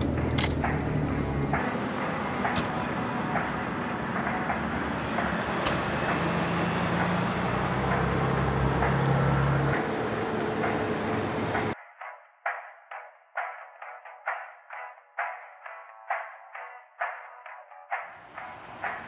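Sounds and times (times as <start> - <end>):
car engine running nearby: 0.0 - 11.8, 18.2 - 19.0
traffic noise: 0.0 - 11.8, 18.2 - 19.0.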